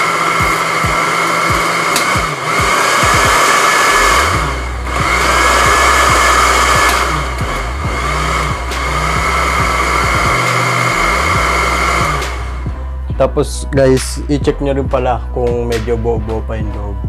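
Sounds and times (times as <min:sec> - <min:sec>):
blender motor whining: 0:00.0 - 0:12.8.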